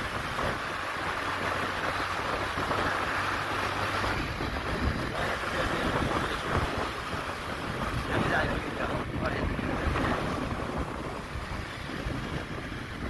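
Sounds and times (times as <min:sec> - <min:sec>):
low vehicle rumble: 0:00.0 - 0:13.0
wind rushing over microphone: 0:00.0 - 0:13.0.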